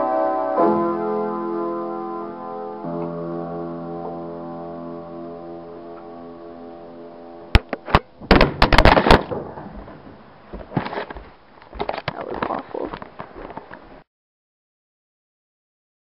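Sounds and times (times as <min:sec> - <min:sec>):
piano chord: 0:00.0 - 0:07.6.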